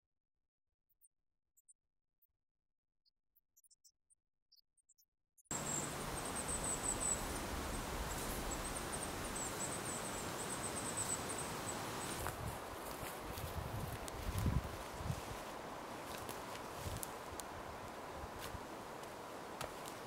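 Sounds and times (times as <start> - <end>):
pulsing insect trill: 5.5 - 12.3
wind buffeting microphone: 6.0 - 18.7.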